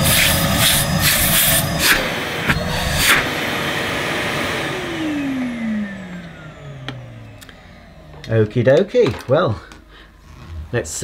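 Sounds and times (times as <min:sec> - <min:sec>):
rush of air: 0:00.0 - 0:04.3
vacuum motor spinning down: 0:00.0 - 0:08.5.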